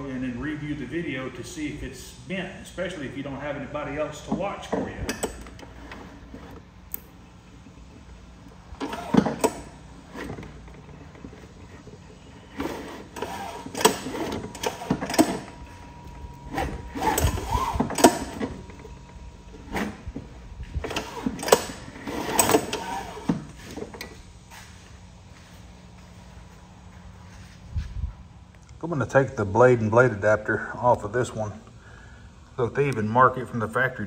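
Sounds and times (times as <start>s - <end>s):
mower engine pulled over by hand: 4.2s - 24.2s.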